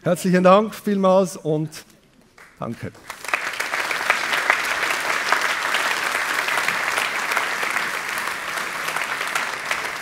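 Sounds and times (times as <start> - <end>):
audience applauding: 2.4 - 10.0.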